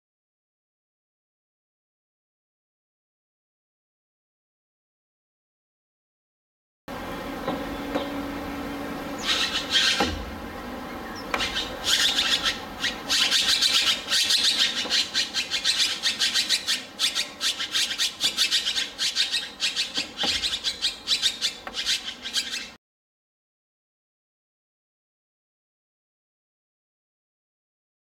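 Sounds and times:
bird making raspy calls: 9.1s - 22.8s.

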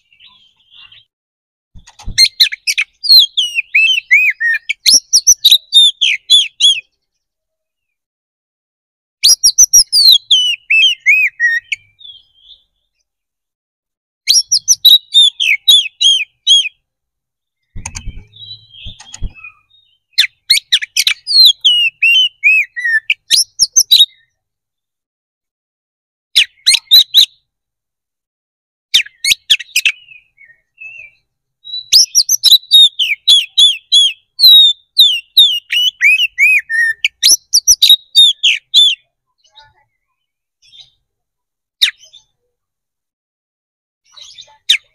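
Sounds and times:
bird singing whistles and chatter: 2.1s - 6.9s, 9.2s - 12.7s, 14.3s - 16.8s, 17.8s - 24.4s, 28.9s - 41.0s.

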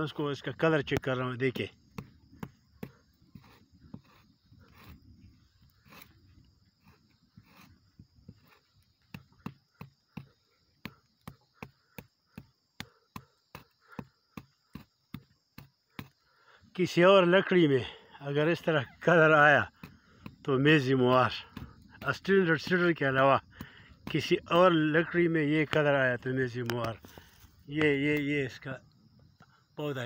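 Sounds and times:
fingernail scraping tree bark: 1.8s - 16.3s.

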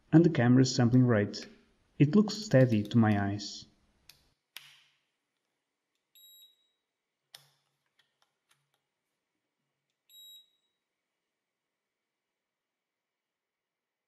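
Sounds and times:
sharp clicks: 2.5s - 3.2s
multimeter short high beeps: 6.2s - 6.8s, 10.1s - 10.7s.

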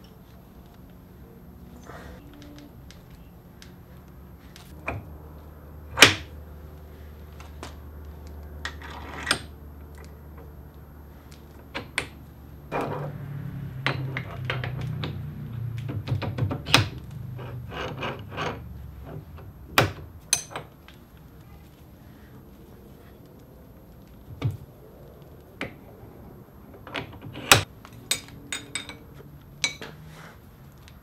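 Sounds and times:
metal parts clicking and clinking: 20.2s - 20.8s, 26.9s - 30.0s.

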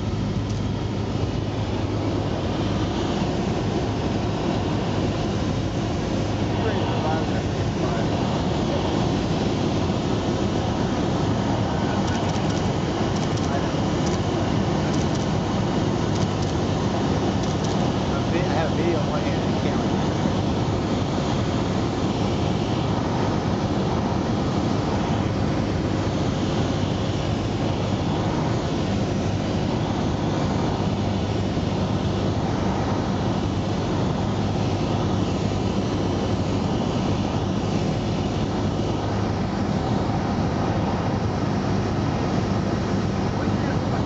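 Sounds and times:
propeller plane engine droning: 0.0s - 44.0s.

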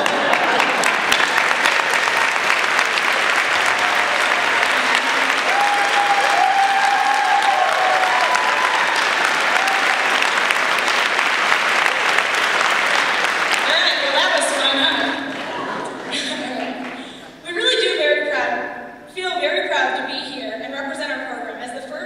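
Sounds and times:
audience cheering: 0.0s - 14.8s
audience applauding: 0.0s - 17.0s.

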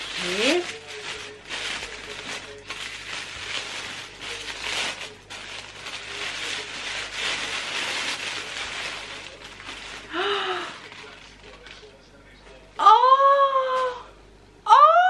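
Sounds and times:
gift wrapping rustling: 0.0s - 12.0s.

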